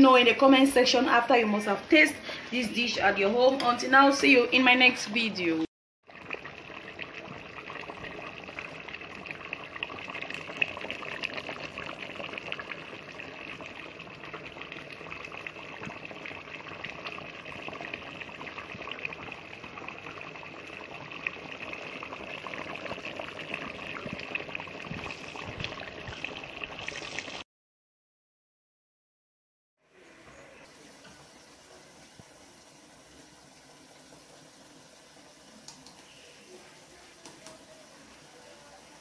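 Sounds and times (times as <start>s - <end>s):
soup bubbling in a pot: 6.0s - 27.4s, 29.8s - 39.0s.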